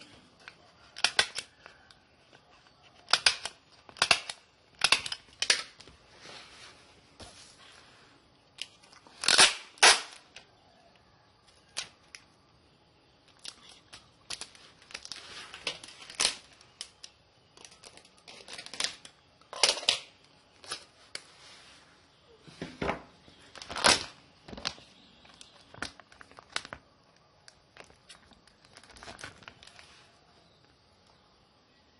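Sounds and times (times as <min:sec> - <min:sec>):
plastic packaging crinkling: 0:08.4 - 0:10.5, 0:13.3 - 0:21.3, 0:23.2 - 0:30.8.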